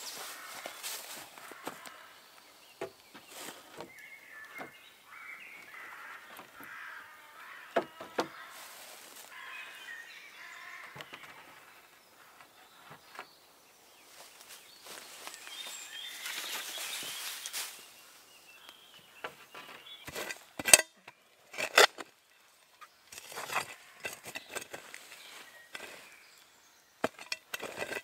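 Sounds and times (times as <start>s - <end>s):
birds calling: 0.0s - 28.0s
wooden poles knocking: 7.8s - 8.5s, 27.0s - 28.0s.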